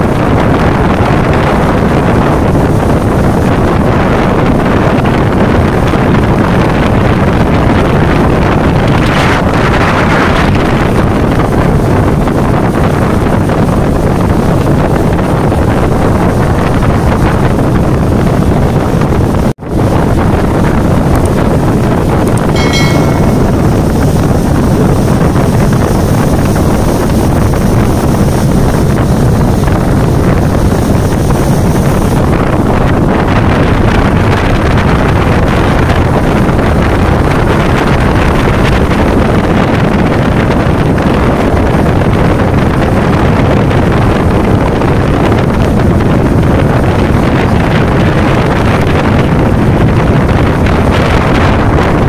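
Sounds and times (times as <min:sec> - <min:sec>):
rushing water and spray: 0:00.0 - 0:52.0
speedboat engine running: 0:00.0 - 0:52.0
wind buffeting microphone: 0:00.0 - 0:52.0
thin high whine: 0:22.2 - 0:29.2.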